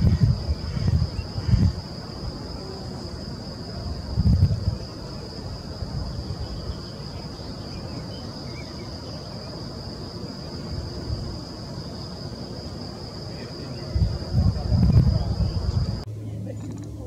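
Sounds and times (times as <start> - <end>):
insects chirring: 0.0 - 17.0
low wind rumble on microphone: 0.0 - 17.0.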